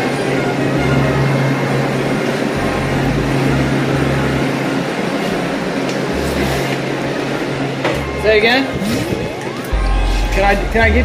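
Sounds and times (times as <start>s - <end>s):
machinery hum: 0.0s - 11.0s
rushing noise: 0.0s - 11.0s
deep low pulses: 2.6s - 11.0s.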